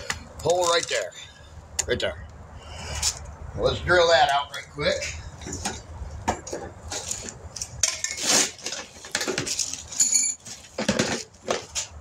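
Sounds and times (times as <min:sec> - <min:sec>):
metal hand tools clinking: 0:09.6 - 0:10.6.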